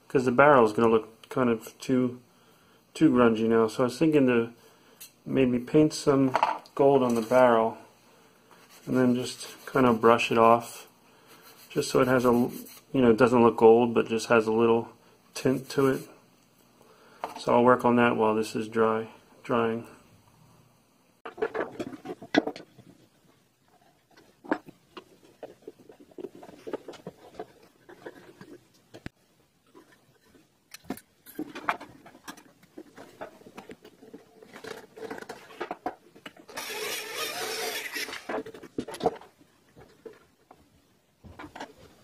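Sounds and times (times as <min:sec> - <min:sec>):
power drill running: 0:36.5 - 0:38.4.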